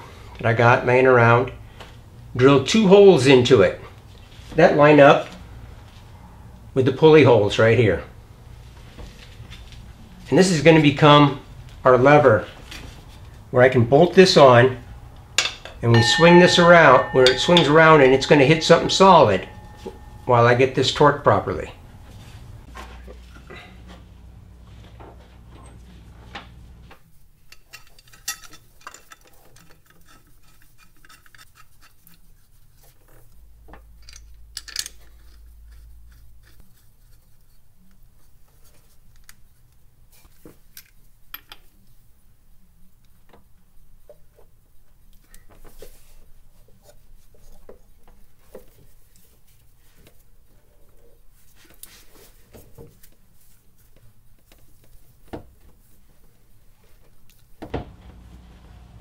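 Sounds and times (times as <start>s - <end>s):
metallic clinks and scrapes: 14.2s - 23.9s
sharp metal knocks: 15.1s - 22.7s.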